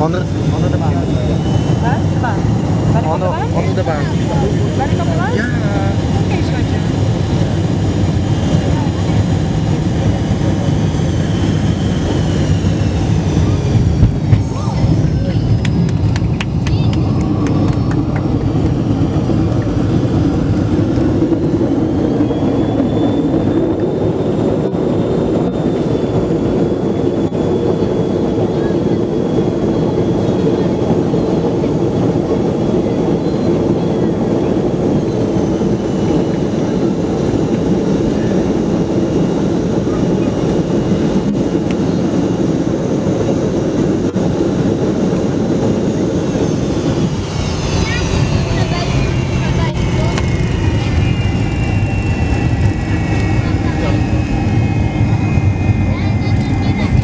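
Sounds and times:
airliner cabin noise: 0.0 - 57.0
high engine whine: 0.0 - 57.0
vehicle cabin rumble: 13.4 - 21.4.

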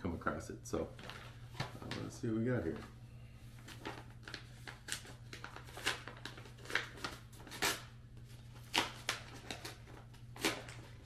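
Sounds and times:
paper envelope rustling: 3.6 - 11.0.

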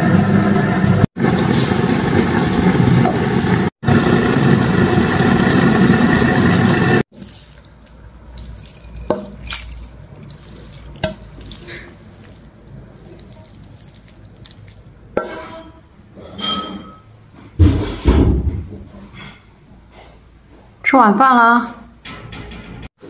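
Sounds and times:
utensils and dishes clinking: 8.4 - 18.2.

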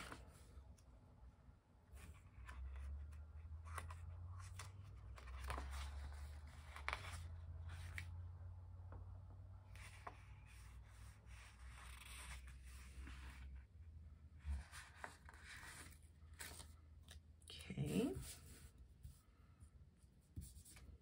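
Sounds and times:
pages rustling and flapping: 2.0 - 8.2, 14.5 - 17.2.

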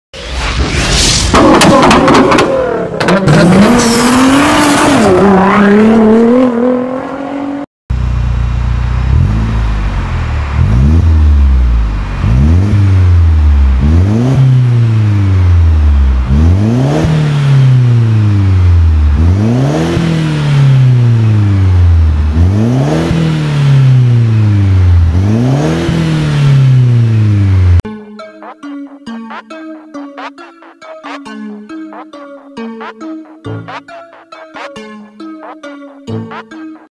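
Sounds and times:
rising intro sound: 0.2 - 1.4
car engine revving: 1.4 - 27.8.

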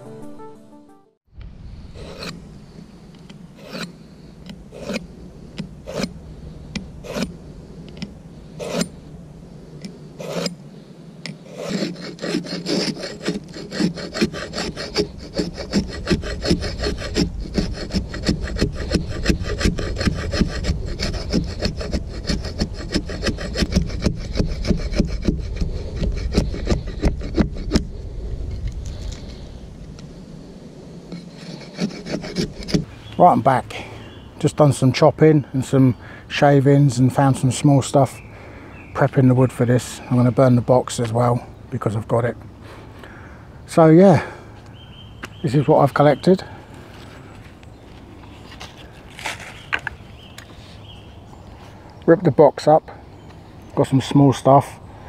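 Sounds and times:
blade rasping on wood: 2.0 - 2.4, 3.2 - 6.2, 6.8 - 7.4, 8.0 - 8.9, 10.2 - 10.6, 11.3 - 27.9, 31.1 - 32.9.

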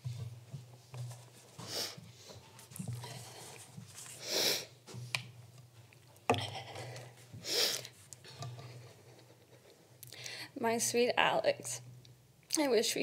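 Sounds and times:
person sniffling: 4.2 - 4.8.

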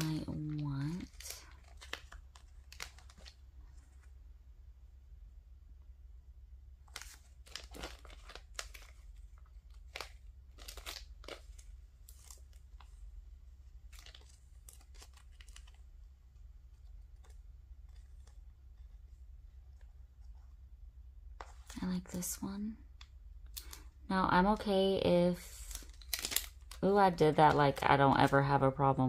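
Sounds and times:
paper stickers rustling: 0.0 - 3.4, 6.9 - 13.0, 13.8 - 16.1, 25.4 - 28.5.

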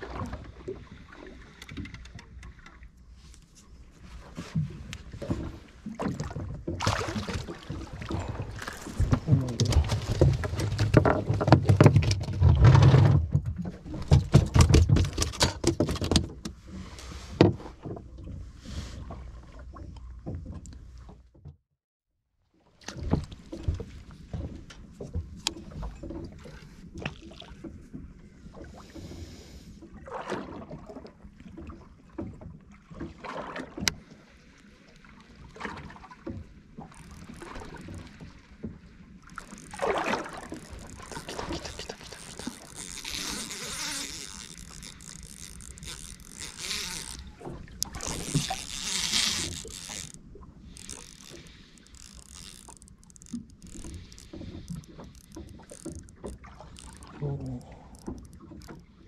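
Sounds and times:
faint water and wind: 0.0 - 21.6, 22.4 - 59.0
knocks and slaps on boat deck: 8.9 - 16.5.

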